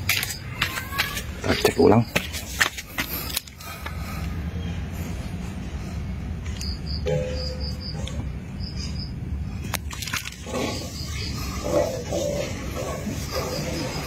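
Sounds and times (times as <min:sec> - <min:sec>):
insect chirping: 0:06.5 - 0:14.0.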